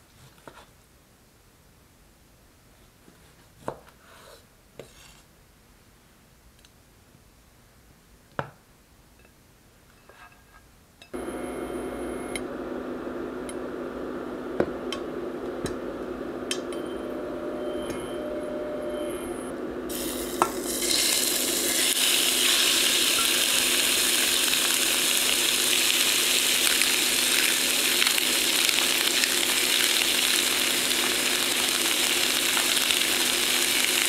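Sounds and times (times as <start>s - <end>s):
induction cooktop hum and whine: 10.0s - 34.0s.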